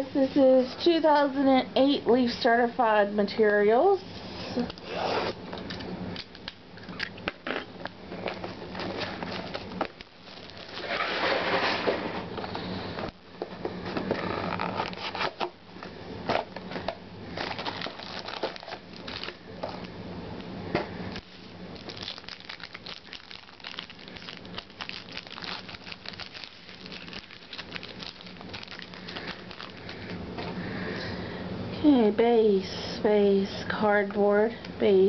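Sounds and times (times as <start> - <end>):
wrappers crinkling: 6.9 - 12.2, 14.0 - 15.6, 16.3 - 19.9, 21.2 - 30.2
clicks and rustles of packs: 7.0 - 12.0, 16.3 - 19.9, 21.8 - 30.6.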